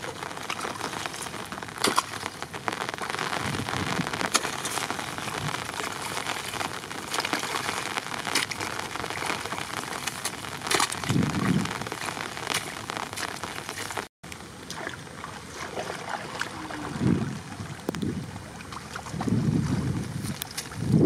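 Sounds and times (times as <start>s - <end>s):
small crackles: 0.0s - 14.8s, 20.0s - 21.0s
water splashing and trickling: 0.0s - 21.0s.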